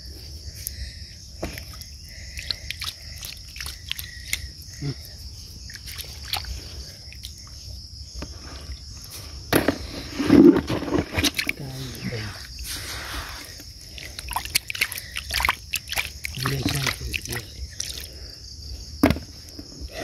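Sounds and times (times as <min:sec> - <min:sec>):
high insect drone: 0:00.0 - 0:20.0
hands splashing in shallow water: 0:02.4 - 0:04.5, 0:14.0 - 0:18.1.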